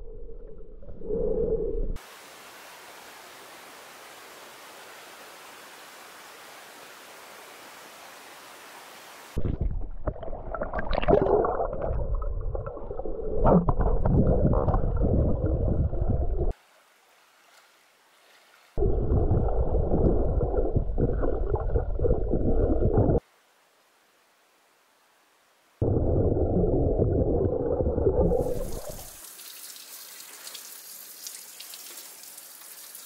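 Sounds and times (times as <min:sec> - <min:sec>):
underwater rushing and gurgling: 0:09.4 - 0:16.6, 0:18.8 - 0:23.2, 0:25.8 - 0:29.2.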